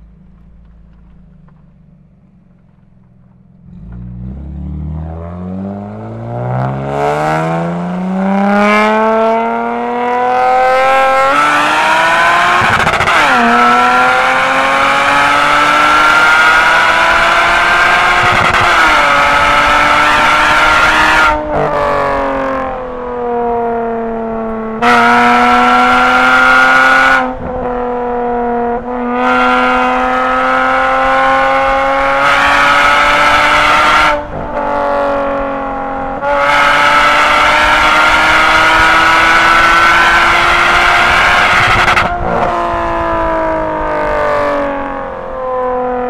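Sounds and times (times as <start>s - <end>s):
car engine revving: 0.0s - 46.0s.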